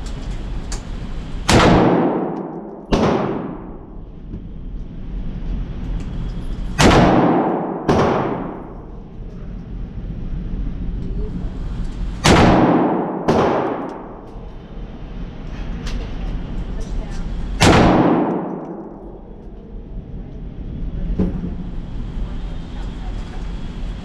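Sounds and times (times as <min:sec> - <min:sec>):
rifle shots echoing indoors: 0:01.4 - 0:04.0, 0:06.8 - 0:09.0, 0:12.2 - 0:14.3, 0:17.6 - 0:19.3.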